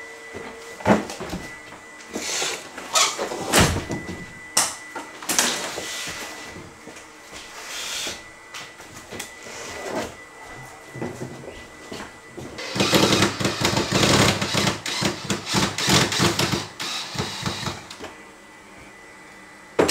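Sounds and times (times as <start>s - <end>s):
faint high tone: 10.2s - 11.8s.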